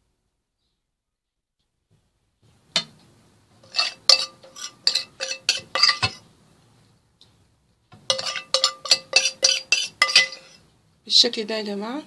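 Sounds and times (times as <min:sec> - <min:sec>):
metal spoon clinking on a tray: 0:03.7 - 0:06.2, 0:08.0 - 0:10.6.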